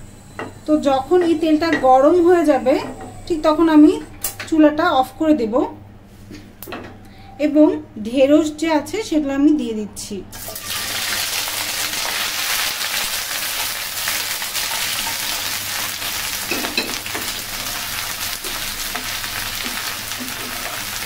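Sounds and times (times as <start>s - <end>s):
okra sizzling in hot oil: 10.4s - 21.0s.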